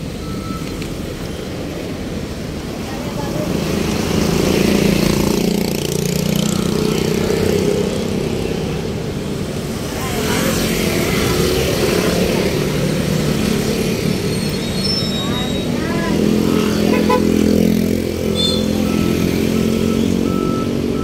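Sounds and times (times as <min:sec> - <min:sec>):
road traffic noise: 0:00.0 - 0:21.0.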